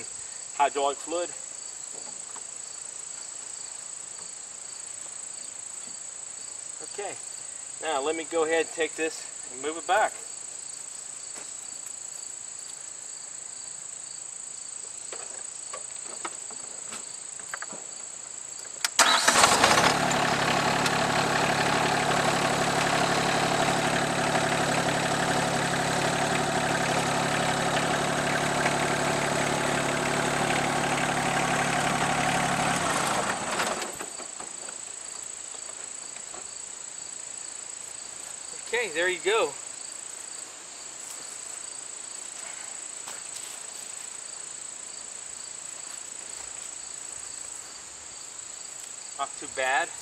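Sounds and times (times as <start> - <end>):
crickets chirring: 0.0 - 19.5, 33.7 - 50.0
diesel tractor engine: 18.9 - 34.6.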